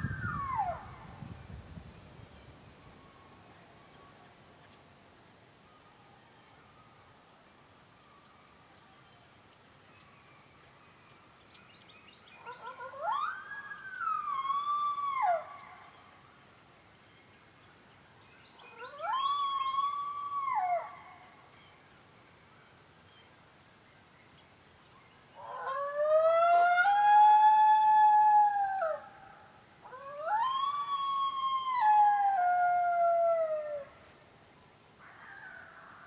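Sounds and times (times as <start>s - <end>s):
coyote howling: 12.4s - 15.6s, 18.6s - 21.2s, 25.4s - 29.2s, 29.8s - 34.0s.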